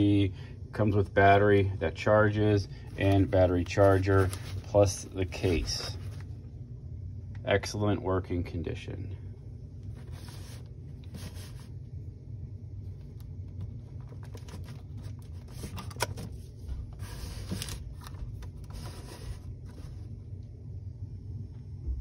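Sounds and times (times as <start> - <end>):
low room rumble: 0.0 - 22.0
camcorder handling rustles: 13.9 - 16.4.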